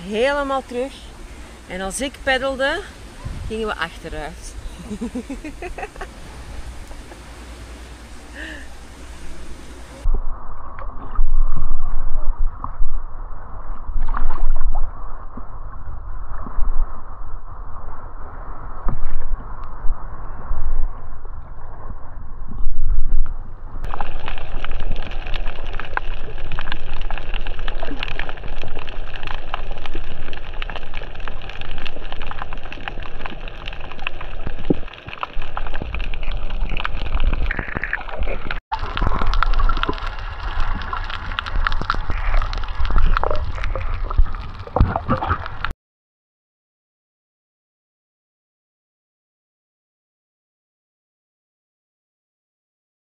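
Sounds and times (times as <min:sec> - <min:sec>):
low rumble: 0:02.9 - 0:45.7
water splashing around kayak: 0:23.8 - 0:45.7.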